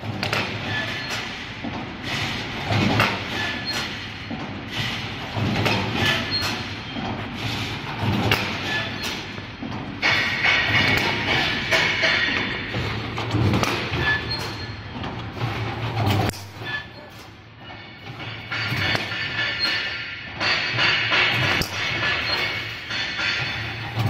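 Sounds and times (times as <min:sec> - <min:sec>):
machine clunking: 0:00.0 - 0:24.0.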